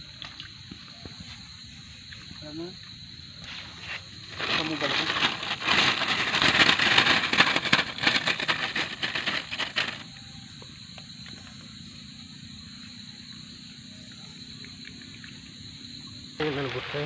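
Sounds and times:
dry reeds crackling and rustling: 4.1s - 10.2s
faint steady hiss: 7.4s - 17.0s.

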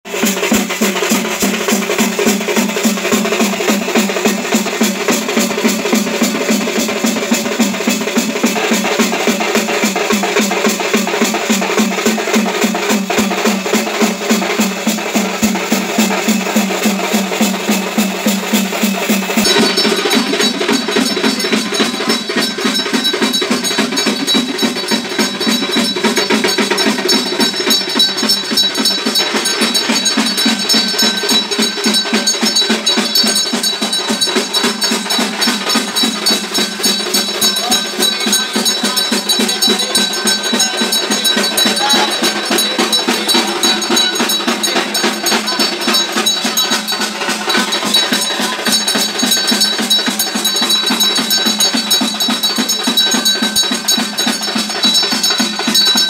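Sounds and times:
drums and percussion beat: 0.0s - 56.0s
high ringing tones: 17.9s - 56.0s
held low tone: 19.4s - 29.0s.

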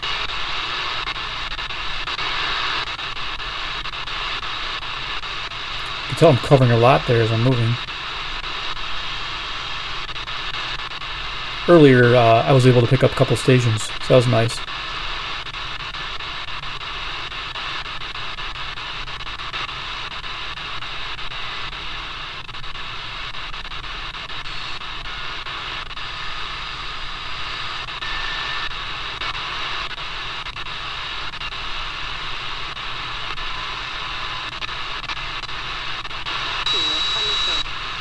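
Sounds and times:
shortwave radio static: 0.0s - 38.0s
faint radio whistles: 36.3s - 38.0s.

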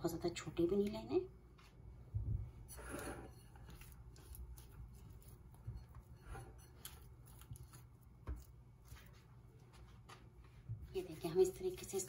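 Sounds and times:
dough handling ticks and rustles: 3.3s - 12.0s.

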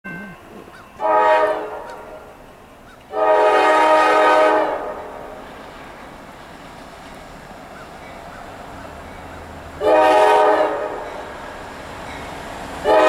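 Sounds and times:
faint train rumble: 0.1s - 13.0s
locomotive air horn blasts: 0.3s - 2.4s, 3.1s - 5.4s, 9.8s - 11.3s.

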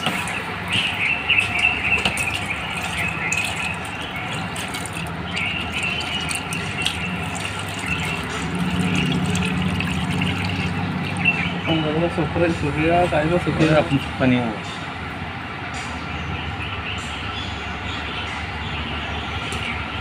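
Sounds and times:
oil streaming into plastic bucket: 1.4s - 11.3s.

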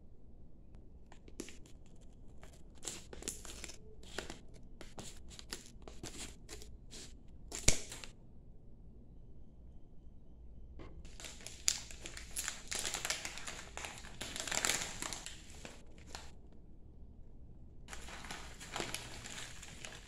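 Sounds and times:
foil packaging crinkling: 1.3s - 8.1s, 11.0s - 16.3s, 17.9s - 20.0s
scissors cutting foil pouch: 2.7s - 8.1s.

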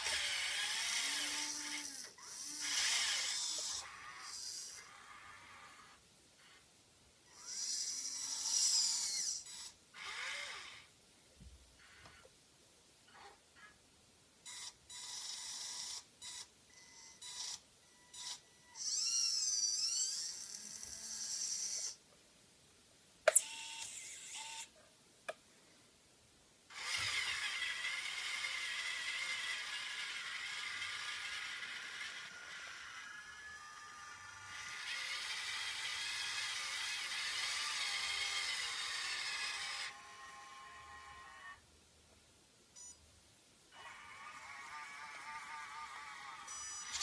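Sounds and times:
electric motors whining: 43.8s - 47.0s.

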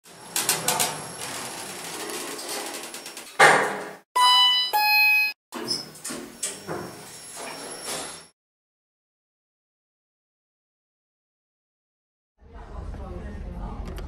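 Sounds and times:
rattling clattering noise: 0.1s - 4.0s
two-note chime: 4.2s - 5.4s.

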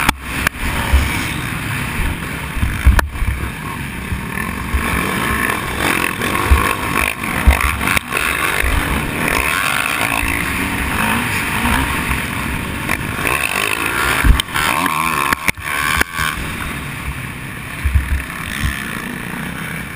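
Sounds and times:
dirt bike engine revving: 0.0s - 19.9s
bike knocking over bumps: 2.6s - 3.4s, 6.4s - 8.8s, 17.8s - 18.8s.

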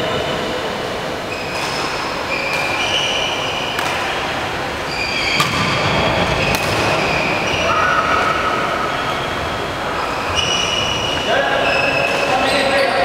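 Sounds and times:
racket hitting shuttlecock: 1.5s - 4.4s, 5.3s - 7.2s
shoes squeaking on wooden floor: 8.9s - 12.8s.

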